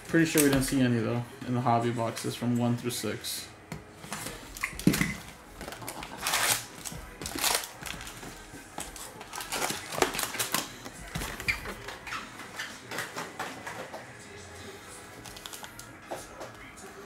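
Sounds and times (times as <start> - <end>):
foil card packs crinkling: 4.1 - 12.1, 15.2 - 15.9
cardboard tear strip ripping: 5.8 - 7.8.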